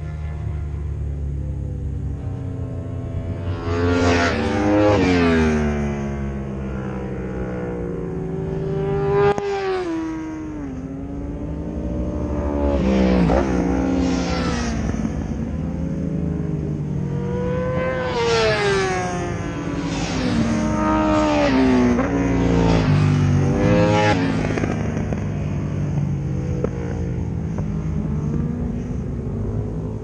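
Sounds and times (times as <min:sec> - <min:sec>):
steady low drone: 0:00.0 - 0:09.4
racing motorcycles passing: 0:00.0 - 0:30.0.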